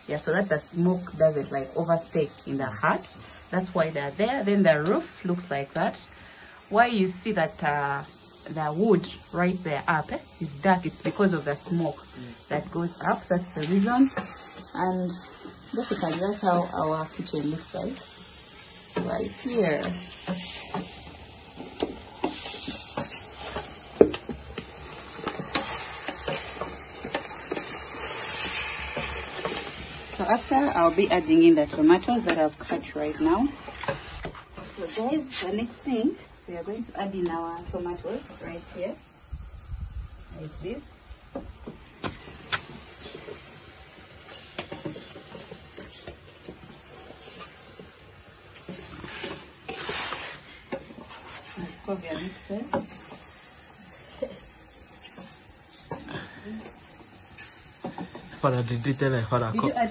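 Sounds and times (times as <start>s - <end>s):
cooking hiss: 0.0s - 59.9s
wooden spoon knocking and scraping pot: 18.8s - 35.8s, 41.3s - 48.0s, 48.6s - 53.4s, 57.8s - 58.4s.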